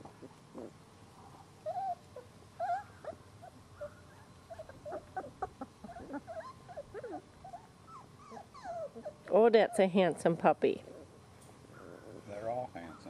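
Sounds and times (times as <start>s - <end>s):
puppies whimpering: 1.6s - 10.0s, 11.7s - 13.0s.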